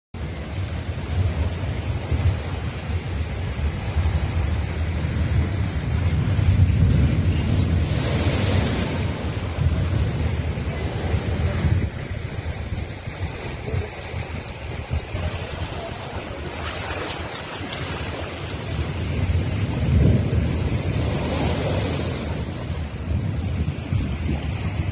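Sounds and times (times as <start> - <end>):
storm surf crashing on rocks: 0.2 - 24.9
wind buffeting the microphone: 0.2 - 24.9
water washing across ground: 7.8 - 24.2.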